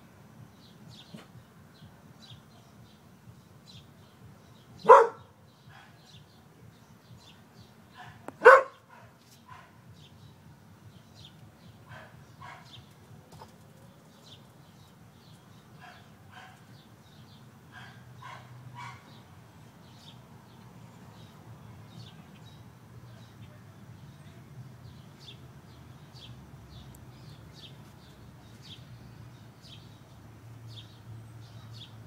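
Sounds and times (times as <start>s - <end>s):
dog barking: 4.8s - 6.0s, 8.0s - 9.8s, 11.9s - 12.8s, 17.8s - 19.1s.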